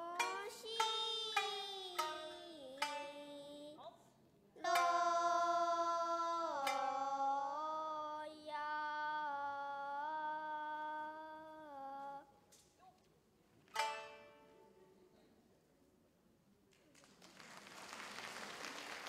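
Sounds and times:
girls singing a long note: 0:00.0 - 0:03.8, 0:04.6 - 0:12.2
shamisen plucks: 0:00.0 - 0:03.8, 0:04.6 - 0:12.2, 0:13.7 - 0:15.0.

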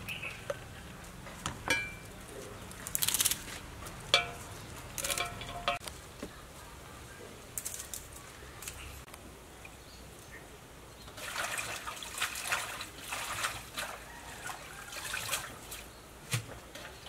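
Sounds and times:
metal bowl clinks: 0:01.7 - 0:02.1, 0:04.1 - 0:05.8
leaves snapping off stem: 0:02.8 - 0:03.6.

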